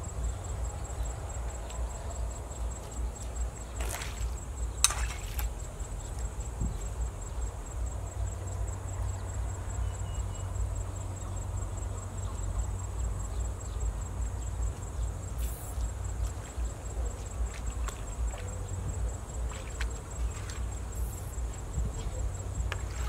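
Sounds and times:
insects high tone: 0:00.0 - 0:23.0
wind rumbling on microphone: 0:16.2 - 0:23.0.

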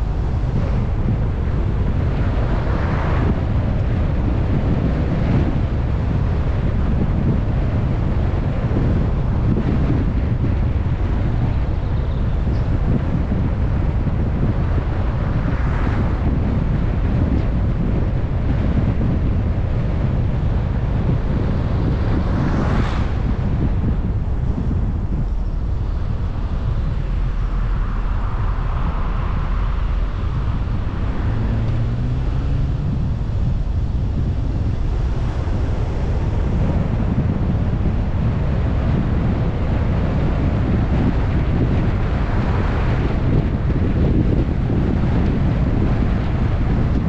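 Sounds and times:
low road rumble: 0:00.0 - 0:47.0
wind buffeting microphone: 0:00.0 - 0:47.0
low tone rising in pitch: 0:25.3 - 0:34.9.

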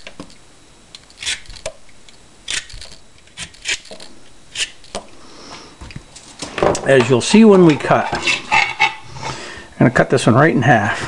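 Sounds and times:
vegetable peeler scraping: 0:01.0 - 0:01.7, 0:02.5 - 0:05.0.

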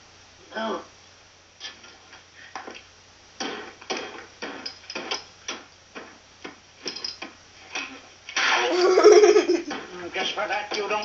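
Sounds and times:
clinks and scrapes of parts: 0:06.8 - 0:08.0.

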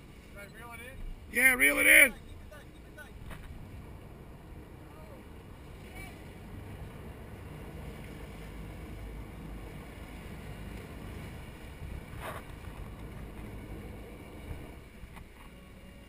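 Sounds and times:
boat engines rumbling: 0:00.0 - 0:16.0
propellers churning water: 0:00.0 - 0:16.0
wind on microphone: 0:05.9 - 0:14.8.

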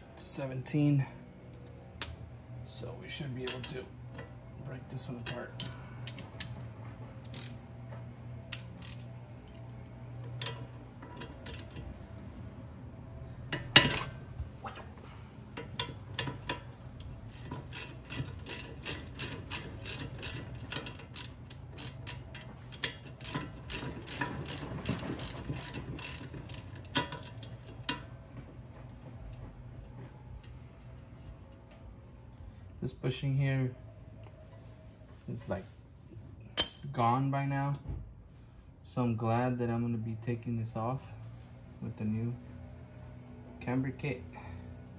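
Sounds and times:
ratchet wrench clicking: 0:05.6 - 0:06.6, 0:07.2 - 0:07.6, 0:08.5 - 0:09.6, 0:10.3 - 0:11.8, 0:15.6 - 0:28.1.

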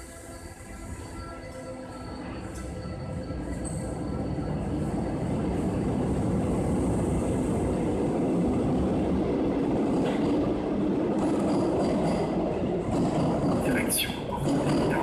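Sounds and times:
metro train rumbling: 0:00.0 - 0:15.0.

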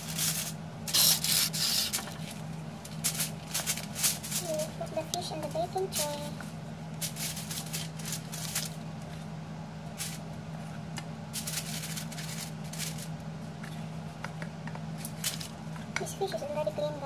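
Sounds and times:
aluminium foil crinkling: 0:00.0 - 0:06.3, 0:07.0 - 0:08.8, 0:10.0 - 0:10.3, 0:11.3 - 0:13.2, 0:15.0 - 0:15.6
plastic gloves crinkling: 0:00.0 - 0:08.9, 0:09.9 - 0:10.3, 0:11.3 - 0:13.2
steady low hum: 0:00.0 - 0:17.0.

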